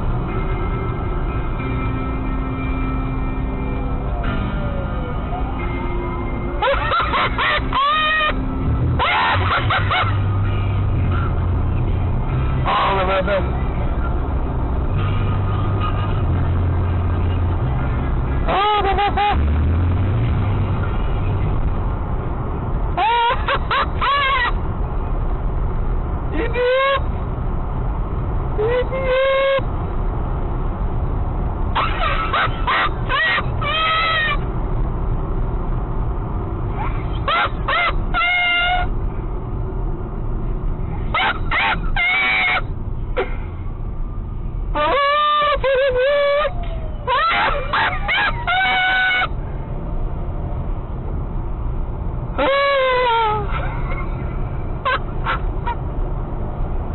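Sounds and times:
car cabin engine and road hum: 0.0 - 56.9
high-pitched vocal cries: 28.6 - 29.7, 31.8 - 34.4, 36.8 - 39.0, 41.1 - 43.3, 44.7 - 49.4, 52.4 - 55.8.

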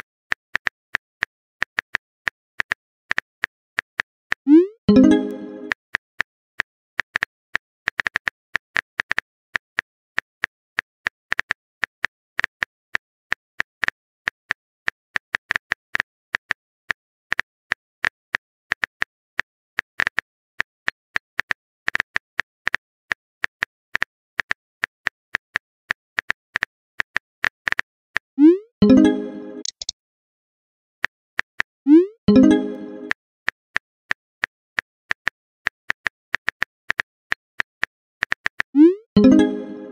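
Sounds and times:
smartphone keyboard taps: 29.6 - 29.9.

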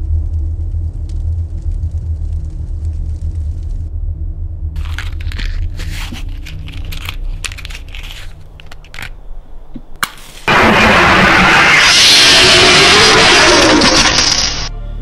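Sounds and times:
crackling and crunching: 0.0 - 3.9, 4.8 - 9.2, 10.0 - 14.7
steady low rumble: 0.0 - 15.0
loud rushing noise: 10.4 - 14.7.

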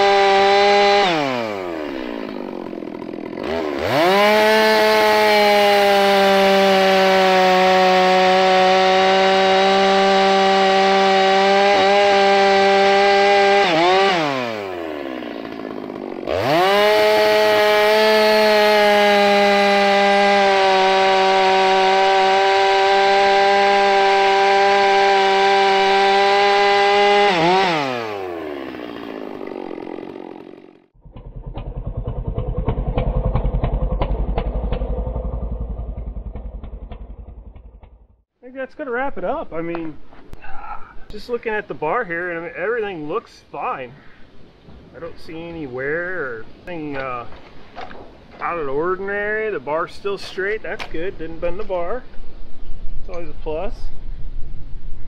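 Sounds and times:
chainsaw cutting log: 0.0 - 38.0.

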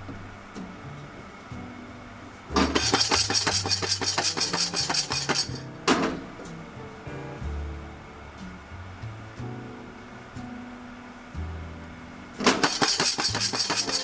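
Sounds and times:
pan clunking on burner grate: 2.6 - 6.2
coffee beans rattling in pan: 2.8 - 5.6, 12.6 - 14.0.

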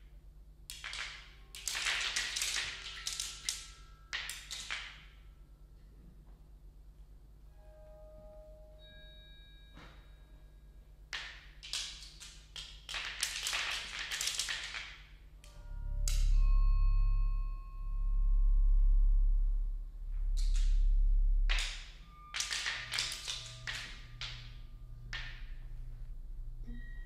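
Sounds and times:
deep low swells: 15.5 - 22.1.

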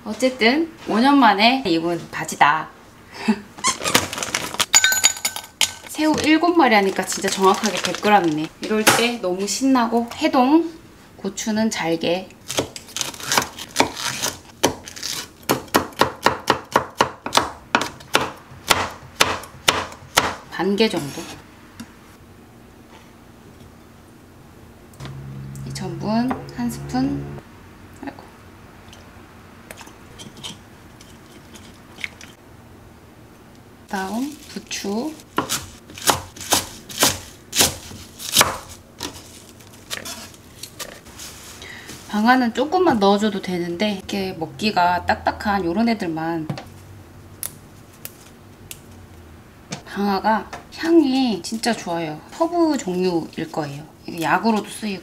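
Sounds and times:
knife chopping on wooden board: 15.5 - 20.4, 35.4 - 39.2.

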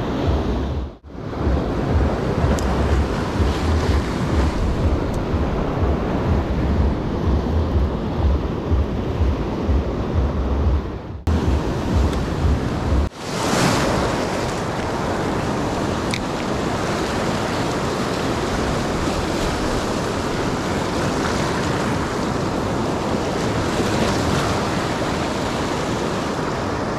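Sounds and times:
surf washing over rocks: 0.0 - 9.4, 11.3 - 26.9
wind buffeting microphone: 0.0 - 26.9.

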